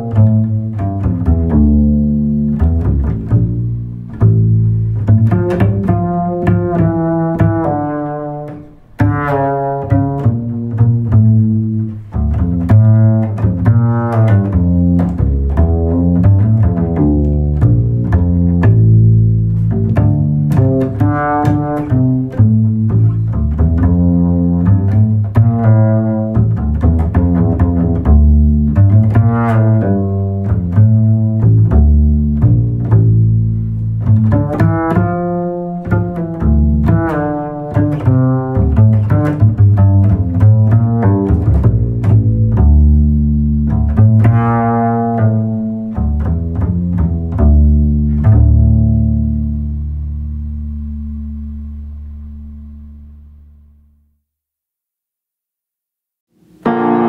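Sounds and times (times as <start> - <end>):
plucked and bowed string melody: 0.0 - 53.4, 56.3 - 57.0
low bass line: 0.0 - 54.2.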